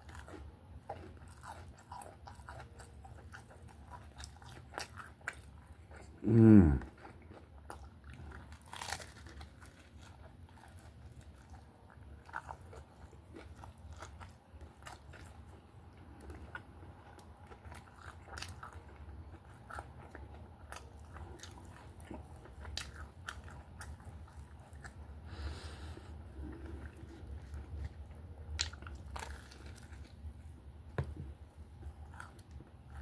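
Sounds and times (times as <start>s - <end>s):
crunches of toasted bread: 0.0s - 25.0s
person chewing toasted sandwich: 0.0s - 33.0s.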